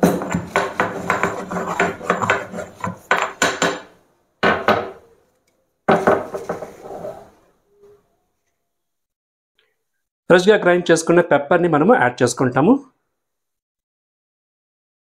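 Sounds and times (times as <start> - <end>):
peppercorns pounding and grinding: 0.0 - 3.9.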